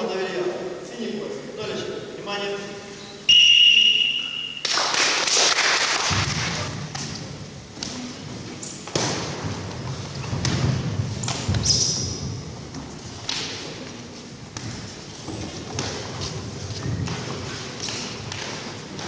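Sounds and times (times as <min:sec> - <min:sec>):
bare feet on wooden floor: 0:06.2 - 0:19.0.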